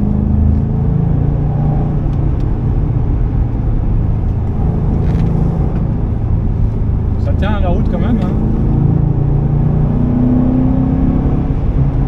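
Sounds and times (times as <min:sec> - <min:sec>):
car engine cruising: 0:00.0 - 0:12.0
road and tyre noise: 0:00.0 - 0:12.0.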